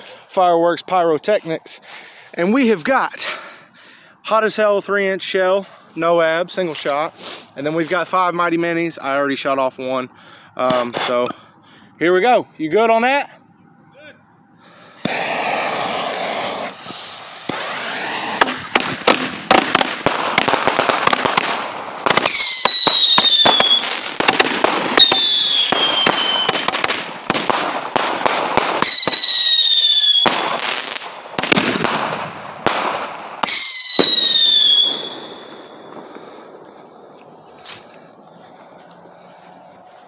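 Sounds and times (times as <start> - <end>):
firework shots and crackling: 10.6 - 11.3, 15.0 - 38.0
descending firework whistles: 14.6 - 32.2, 33.3 - 37.6.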